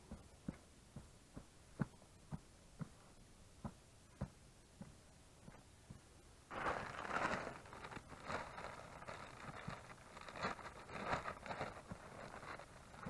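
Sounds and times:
plastic sack rustling and crinkling: 6.5s - 13.0s.

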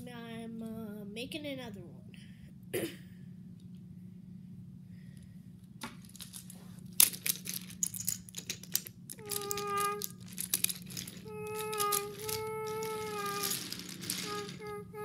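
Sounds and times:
toy train clattering on wooden track: 5.9s - 14.8s.

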